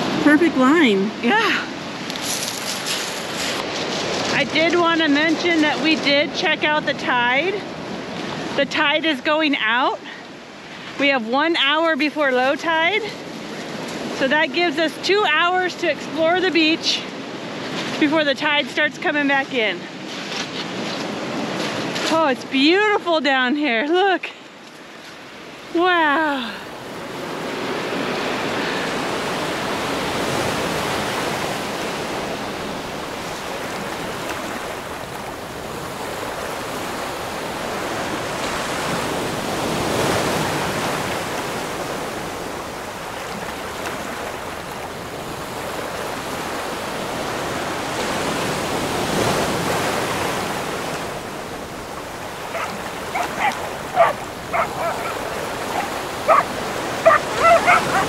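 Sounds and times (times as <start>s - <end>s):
ocean waves washing onto beach: 0.0s - 58.0s
dogs yipping and barking: 52.4s - 58.0s.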